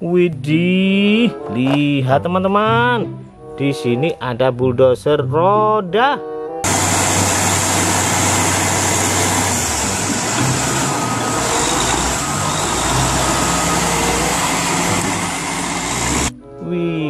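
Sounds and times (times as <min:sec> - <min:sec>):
diesel engine drone: 0:06.6 - 0:16.3.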